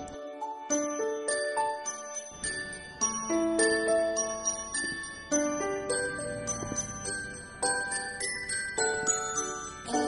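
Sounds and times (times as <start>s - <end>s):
light chiming melody: 0.0s - 10.0s.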